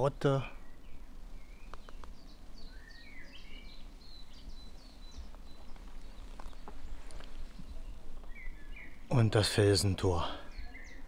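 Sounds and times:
songbirds chirping: 0:00.0 - 0:11.0
faint clicks: 0:01.6 - 0:02.2.

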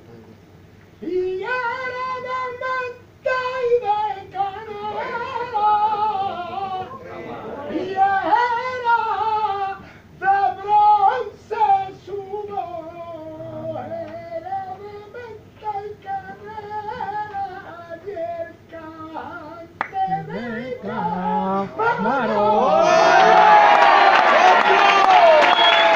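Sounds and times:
man singing flamenco: 0:07.7 - 0:22.8.

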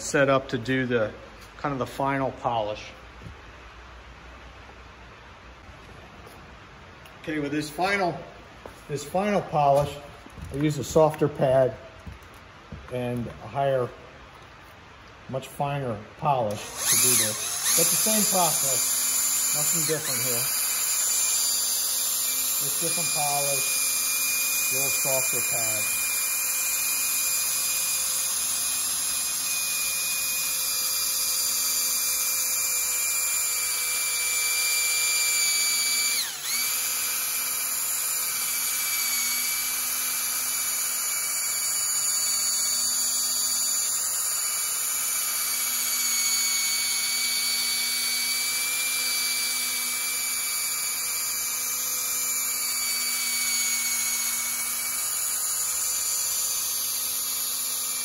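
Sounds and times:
cordless polisher whining: 0:16.5 - 0:58.0.

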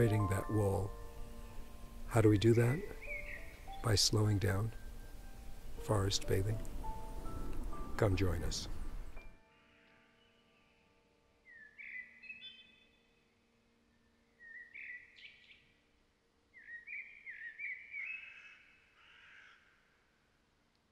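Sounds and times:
songbird singing whistled notes: 0:00.0 - 0:05.4, 0:11.4 - 0:13.3, 0:13.9 - 0:15.8, 0:16.5 - 0:18.9.

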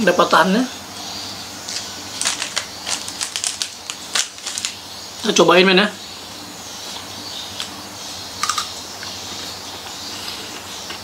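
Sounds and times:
crunchy chocolate bar chewing: 0:01.7 - 0:04.8.

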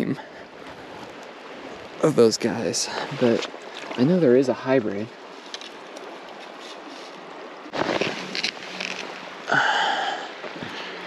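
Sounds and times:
river flowing: 0:00.2 - 0:11.0
rustling: 0:05.3 - 0:09.2.

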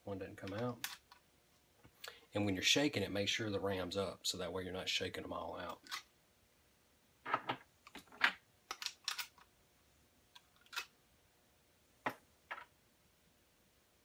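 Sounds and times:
brass cases clicking and clinking: 0:07.4 - 0:09.4.

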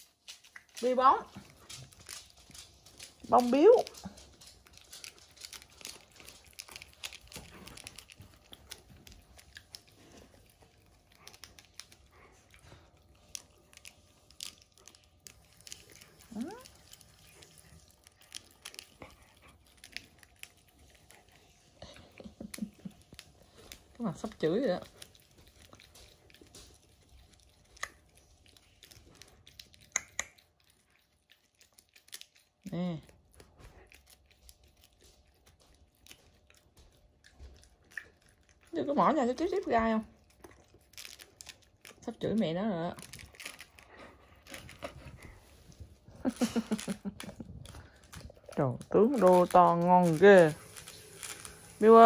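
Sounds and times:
dogs gnawing a chew bone: 0:00.0 - 0:52.0
teeth clicking: 0:21.8 - 0:32.5.

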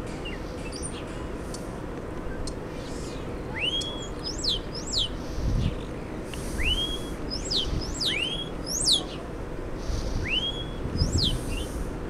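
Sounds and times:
starling whistling: 0:03.5 - 0:05.2, 0:06.5 - 0:09.1, 0:09.8 - 0:11.8.

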